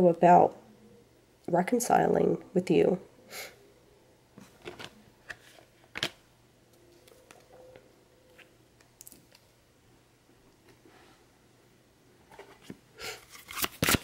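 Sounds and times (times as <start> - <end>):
cards rustling and clicking: 6.9 - 7.5, 12.4 - 14.0.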